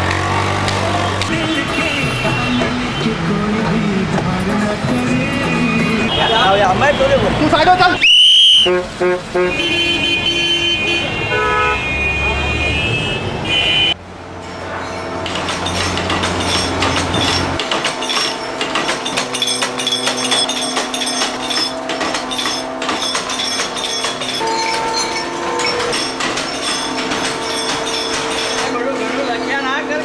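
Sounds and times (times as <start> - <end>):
clatter of clinks and knocks: 15.3 - 28.8.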